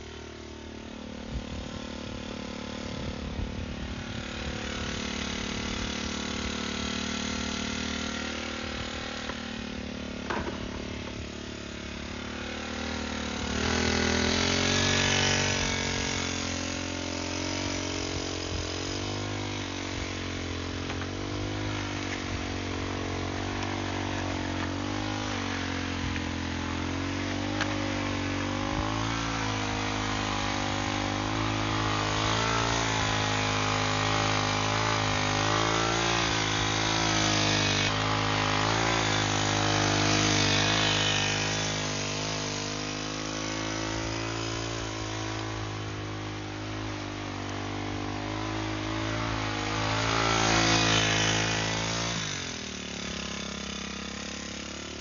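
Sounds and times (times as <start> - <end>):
small engine running under load: 0.0 - 55.0.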